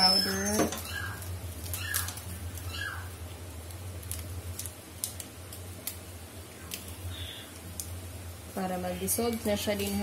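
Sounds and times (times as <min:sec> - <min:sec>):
high falling squeaks: 0:00.0 - 0:01.2
low steady hum: 0:00.0 - 0:10.0.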